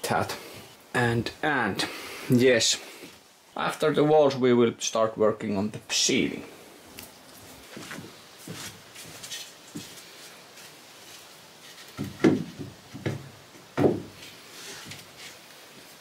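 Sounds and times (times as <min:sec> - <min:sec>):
wood knocking on sheet metal: 0:12.0 - 0:14.2.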